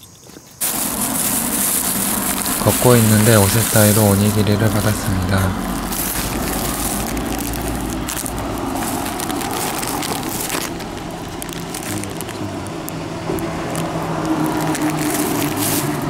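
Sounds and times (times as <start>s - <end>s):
plastic wrappers crinkling: 0.1s - 16.0s.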